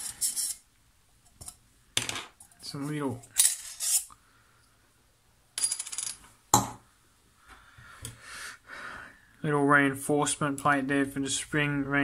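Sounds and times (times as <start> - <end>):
steel parts clattering on wooden table: 1.4 - 2.4.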